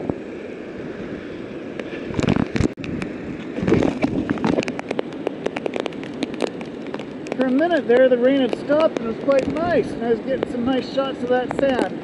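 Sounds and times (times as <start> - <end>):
wind buffeting camera: 0.0 - 12.0
raindrops tapping on housing: 3.6 - 12.0.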